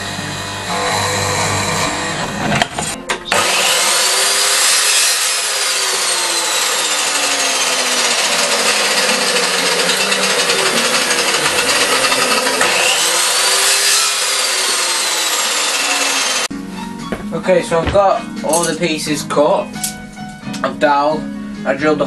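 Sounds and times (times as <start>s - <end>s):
power saw cutting wood: 0.0s - 16.5s.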